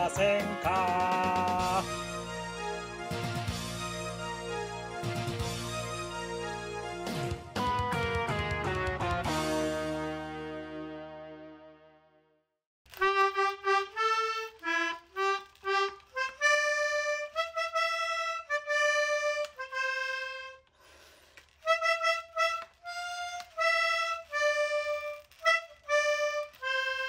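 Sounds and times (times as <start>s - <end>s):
reedy wind instrument melody: 1.6s - 7.5s, 12.9s - 20.7s, 21.6s - 27.0s.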